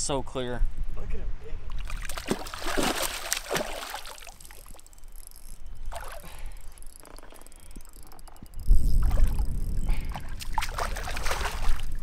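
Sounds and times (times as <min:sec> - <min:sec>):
soft water sounds: 0:01.5 - 0:12.0
fish splashing at water surface: 0:01.8 - 0:04.7.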